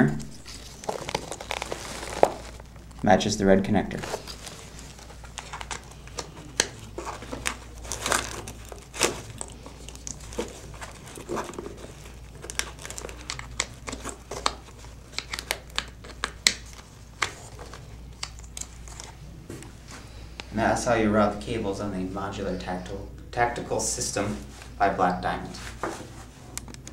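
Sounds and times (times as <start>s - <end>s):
nylon fabric rustling: 0.4s - 2.8s.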